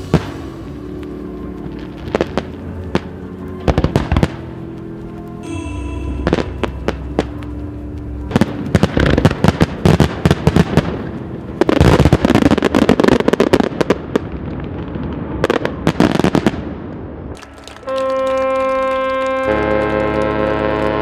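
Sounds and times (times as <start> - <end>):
firework shells bursting: 17.4 - 20.3.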